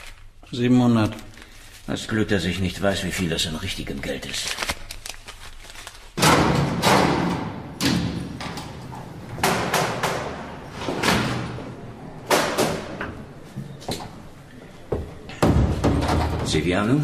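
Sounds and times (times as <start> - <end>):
heavy doors slamming with echo: 6.2 - 17.0.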